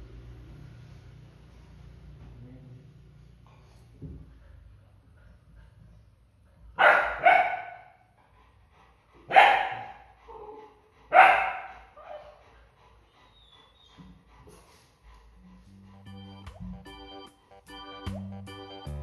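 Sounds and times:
puppy barking: 6.8s - 8.0s, 9.3s - 10.0s, 11.1s - 12.3s.

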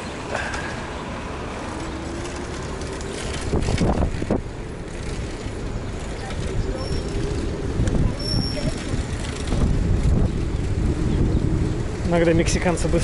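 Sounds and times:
road traffic: 0.0s - 13.0s
wind on microphone: 2.9s - 13.0s.

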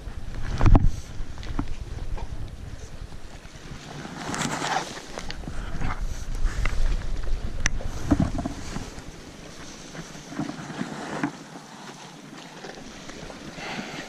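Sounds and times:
wind buffeting microphone: 0.0s - 11.0s
sea washing against rocks: 0.0s - 14.0s.

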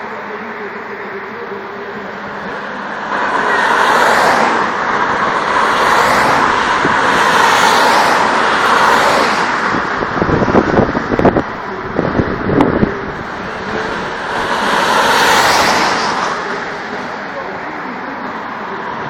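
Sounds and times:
cars driving past at speed: 2.2s - 19.0s.

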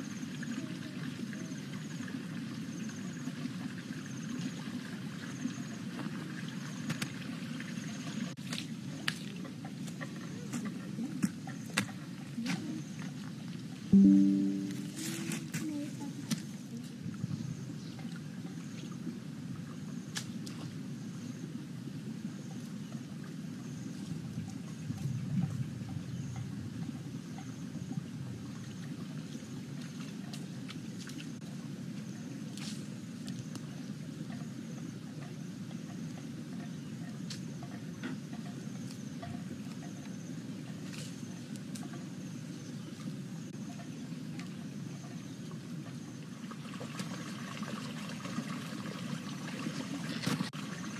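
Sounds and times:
faint high chirps: 14.0s - 16.2s
high pulsing call: 14.0s - 16.2s.

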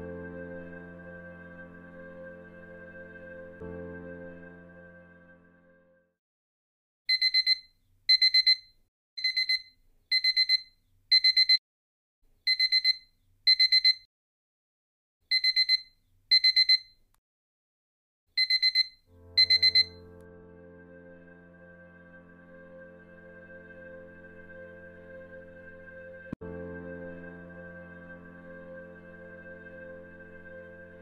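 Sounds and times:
alarm clock beeping: 7.1s - 11.6s, 12.5s - 14.1s, 15.3s - 16.9s, 18.4s - 20.0s.

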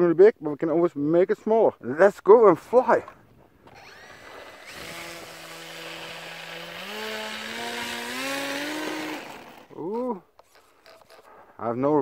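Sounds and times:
electric motor and propeller buzzing: 3.6s - 11.3s.

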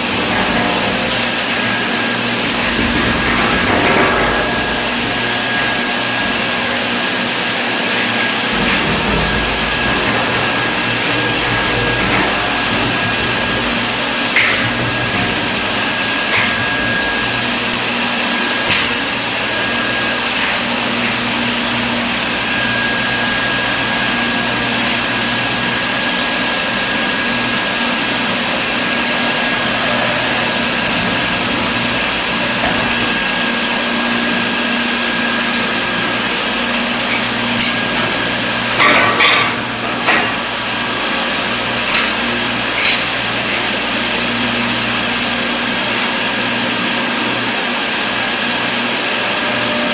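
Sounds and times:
high whine: 0.0s - 46.0s
workshop machinery whirring: 0.0s - 49.9s
knocks and clatters: 2.4s - 6.6s, 8.3s - 17.2s.

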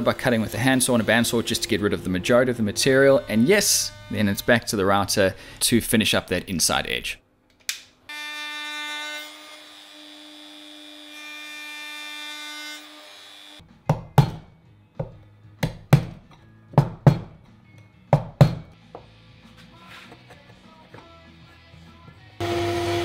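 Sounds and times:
router whining: 0.4s - 4.8s, 22.4s - 23.0s.

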